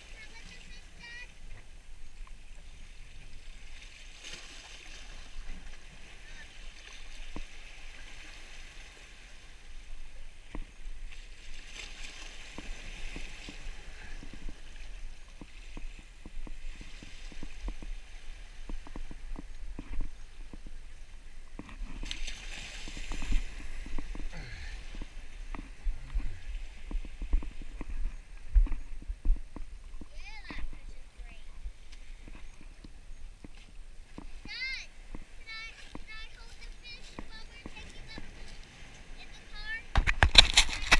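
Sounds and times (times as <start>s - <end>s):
surf sloshing against boulders: 0.0s - 40.9s
low rumbles: 23.0s - 31.9s.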